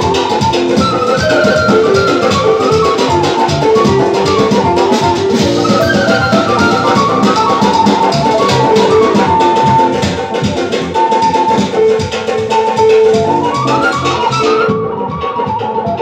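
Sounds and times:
steady drum beat: 0.0 - 16.0
wind instrument melody: 0.0 - 16.0.

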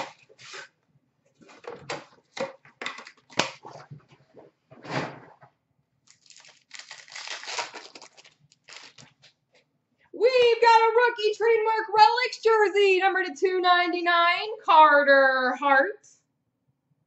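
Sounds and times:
foil pack tearing and crinkling: 6.1 - 9.3.

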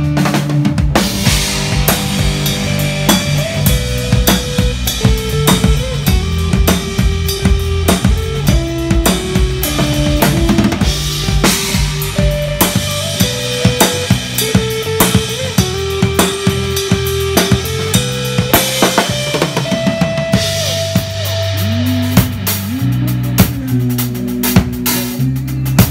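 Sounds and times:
drum kit played with sticks: 0.0 - 25.9
sustained bass and guitar: 0.0 - 25.9.

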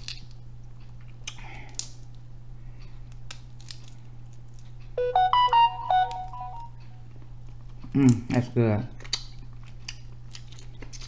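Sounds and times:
short electronic tune: 5.0 - 6.8.

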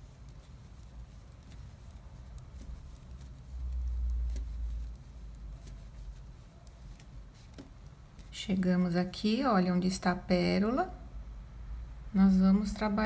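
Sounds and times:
knitting needles clicking: 0.0 - 8.6.

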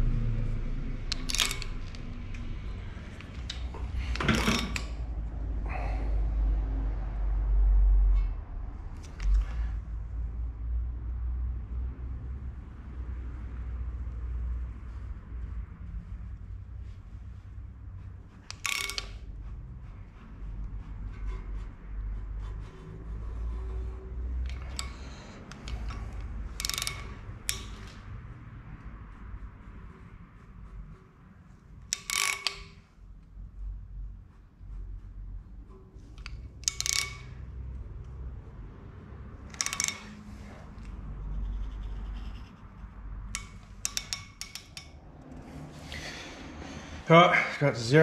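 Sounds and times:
low rumble: 0.0 - 4.2
metallic clicks of socket bar: 1.1 - 2.5, 18.5 - 19.2, 24.5 - 28.0, 36.2 - 37.3, 39.5 - 40.9, 43.3 - 45.0.

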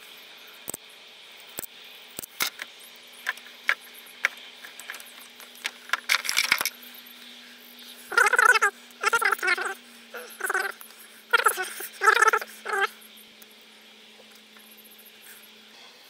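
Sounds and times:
wire cutters clicking and snapping: 1.6 - 6.8
wire rustling clatter: 4.6 - 6.8.

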